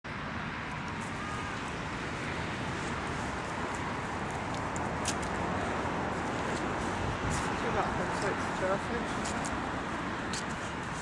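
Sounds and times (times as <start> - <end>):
wind rumble on microphone: 0.6 - 11.0.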